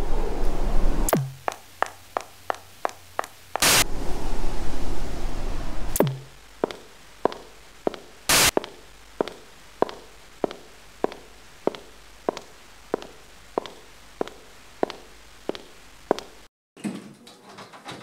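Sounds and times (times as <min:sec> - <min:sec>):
television static: 0:00.0 - 0:16.5
footsteps on hard floor: 0:01.2 - 0:03.8, 0:06.1 - 0:16.4.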